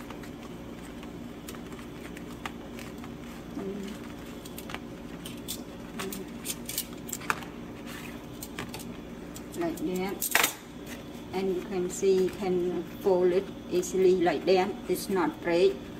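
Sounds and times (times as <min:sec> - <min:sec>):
leaf crackling over a burner: 0:00.0 - 0:14.4.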